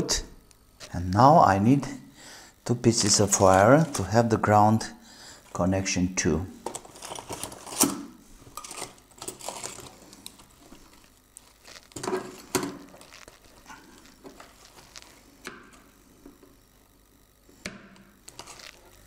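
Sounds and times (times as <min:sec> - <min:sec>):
rustling of wire and small parts: 0:03.0 - 0:04.3, 0:06.5 - 0:16.6, 0:18.0 - 0:19.0.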